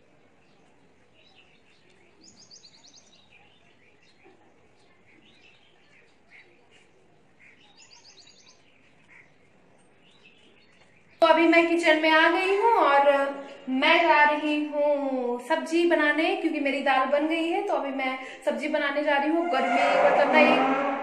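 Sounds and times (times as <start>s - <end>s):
small birds chirping: 0.0s - 15.1s.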